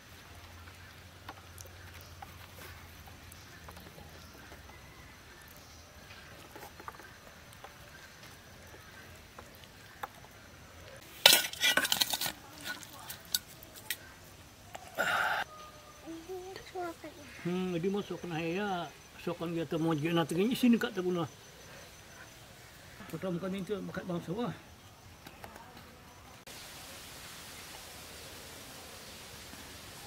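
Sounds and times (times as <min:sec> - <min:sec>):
steel bowls and utensils clattering: 0:11.0 - 0:14.0.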